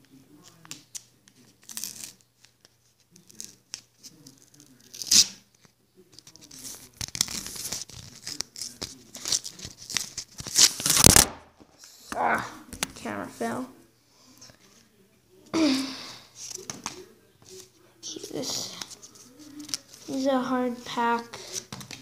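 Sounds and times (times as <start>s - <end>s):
paper tearing and crinkling: 1.4s - 2.2s, 4.2s - 5.4s, 6.3s - 11.4s.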